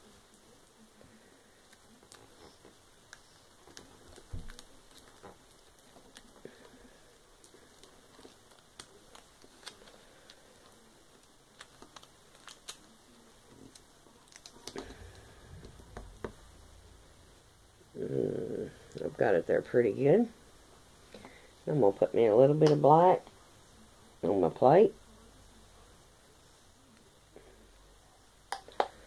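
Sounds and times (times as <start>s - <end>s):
tape and netting crinkling: 7.4s - 16.4s.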